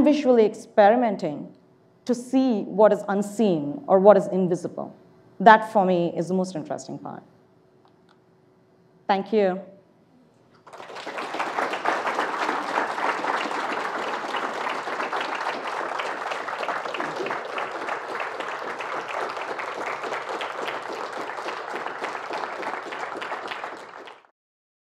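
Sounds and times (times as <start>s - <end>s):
audience applauding: 10.6s - 24.3s.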